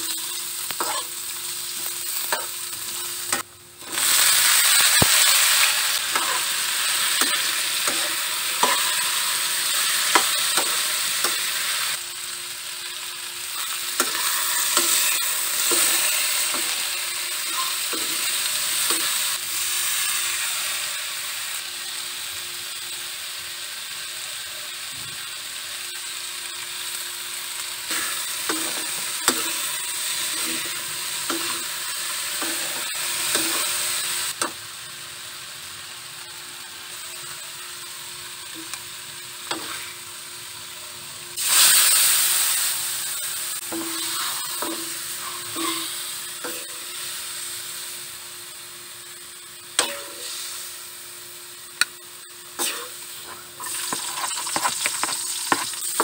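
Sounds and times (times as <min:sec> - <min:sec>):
vegetables sizzling in a wok: 0:00.0 - 0:56.0
metal spoon scraping a pan: 0:00.8 - 0:01.1, 0:05.4 - 0:09.3, 0:27.9 - 0:33.9, 0:43.7 - 0:46.8, 0:52.6 - 0:56.0.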